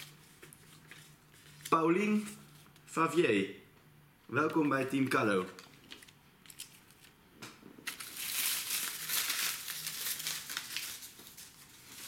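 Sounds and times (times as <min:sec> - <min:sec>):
paper slips rustling: 0:07.9 - 0:12.0.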